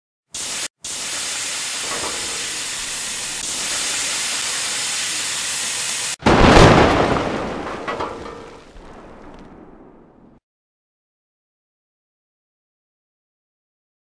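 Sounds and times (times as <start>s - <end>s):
fuse hissing: 0.4s - 6.2s
loud explosion: 6.2s - 10.4s.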